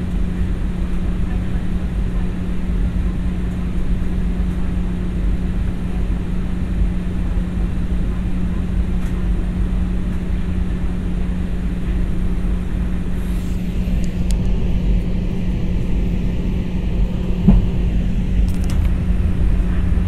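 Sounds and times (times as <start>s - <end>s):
airliner cabin engine noise: 0.0s - 20.0s
brief knock: 17.4s - 17.8s.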